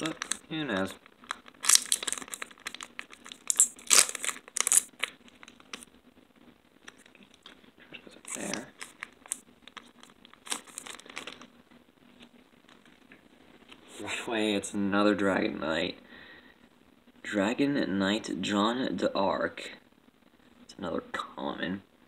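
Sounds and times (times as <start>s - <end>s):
foil wrapper crinkling and tearing: 0.0s - 5.9s, 6.8s - 11.5s.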